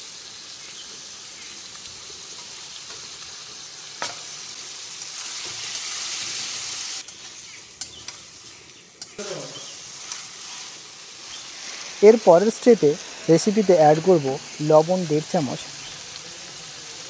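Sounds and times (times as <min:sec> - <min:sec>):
food sizzling in oil: 0:00.0 - 0:17.0
spatula stirring in pan: 0:05.0 - 0:14.6.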